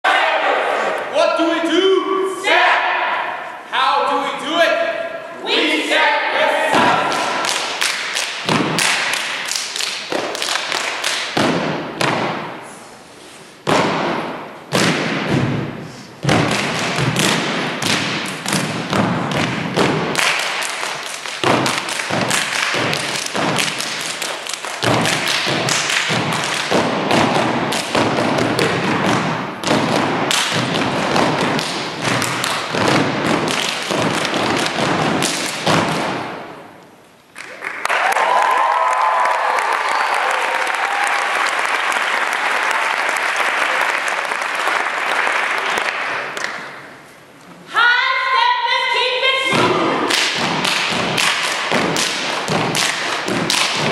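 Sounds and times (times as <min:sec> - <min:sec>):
rhythmic stomps: 0:06.7 - 0:12.7, 0:13.6 - 0:36.6, 0:49.5 - 0:53.9
hand claps: 0:06.8 - 0:12.3, 0:16.3 - 0:36.2, 0:37.4 - 0:46.8, 0:50.1 - 0:53.9
body slaps: 0:13.6 - 0:15.6, 0:16.2 - 0:36.3, 0:49.6 - 0:53.9.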